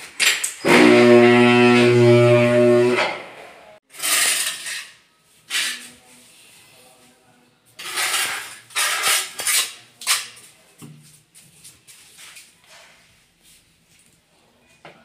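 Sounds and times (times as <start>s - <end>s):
trowel scraping tile and mortar: 3.9s - 6.1s, 7.8s - 10.4s.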